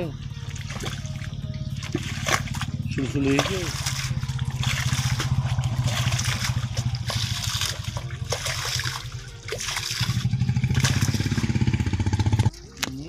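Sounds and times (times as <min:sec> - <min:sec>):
muddy water splashing: 0:00.0 - 0:13.0
small engine droning: 0:00.0 - 0:13.0
metal pan scooping water: 0:00.4 - 0:11.8.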